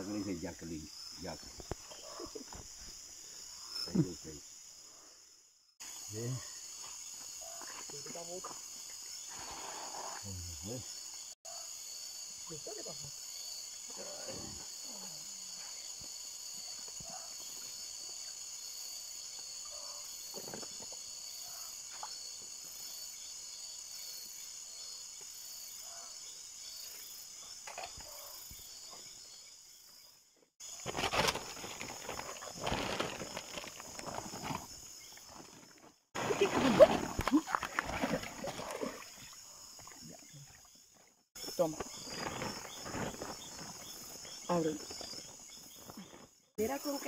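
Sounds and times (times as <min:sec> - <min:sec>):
night insects chorus: 0:00.0 - 0:47.0
plastic sack rustling: 0:30.6 - 0:34.7.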